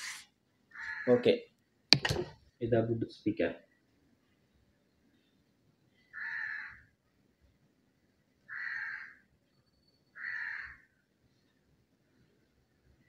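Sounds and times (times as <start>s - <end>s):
crow cawing: 0.7s - 1.2s, 6.2s - 6.8s, 8.5s - 9.2s, 10.2s - 10.9s.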